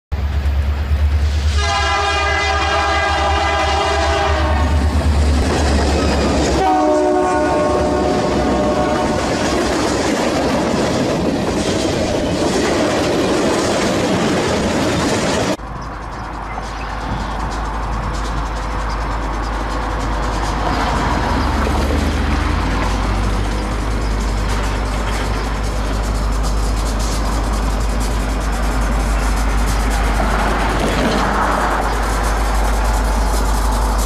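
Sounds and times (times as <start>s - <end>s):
train on rails: 0.1s - 34.0s
locomotive air horn blasts: 1.5s - 4.8s, 6.5s - 9.5s
heavy low rumble: 17.3s - 34.0s.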